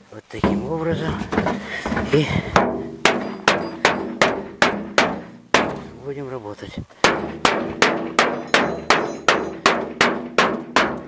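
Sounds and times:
wooden mallet beating sheet metal: 0.4s - 6.0s, 7.0s - 11.0s
metal ringing: 2.6s - 6.0s, 7.1s - 11.0s.

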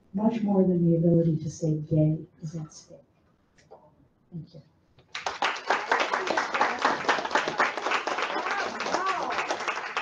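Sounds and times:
audience applauding: 5.1s - 10.0s.

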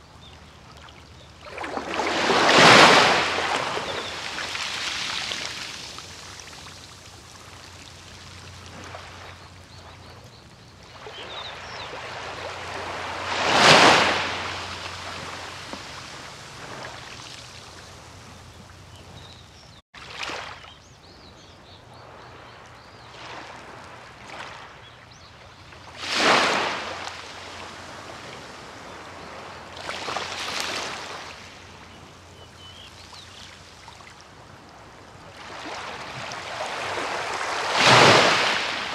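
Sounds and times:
waves breaking on beach: 1.4s - 10.1s, 10.9s - 19.2s, 25.8s - 32.2s, 33.0s - 38.9s.

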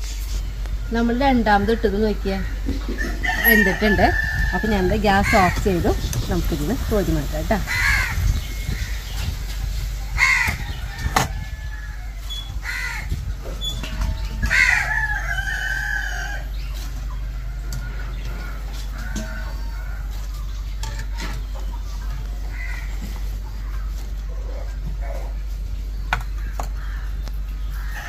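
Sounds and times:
rooster crowing: 2.9s - 5.5s, 10.2s - 13.0s, 14.1s - 16.5s.

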